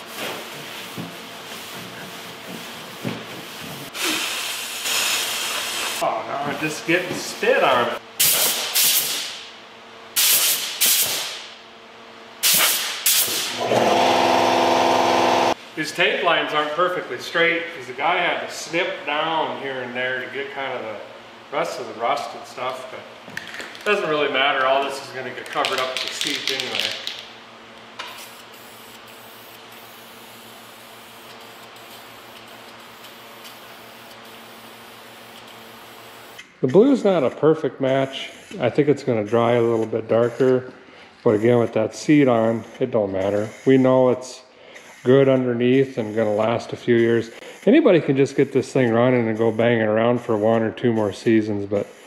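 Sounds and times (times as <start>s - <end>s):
aerosol spray can hissing: 8.2s - 9.2s, 10.2s - 11.3s, 12.4s - 13.5s.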